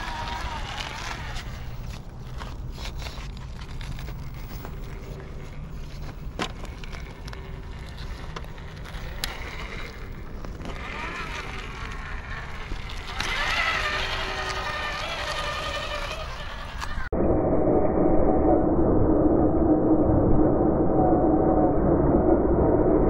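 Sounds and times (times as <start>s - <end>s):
electric motor whining: 0.0s - 17.1s
tires scrabbling on rock: 0.0s - 17.1s.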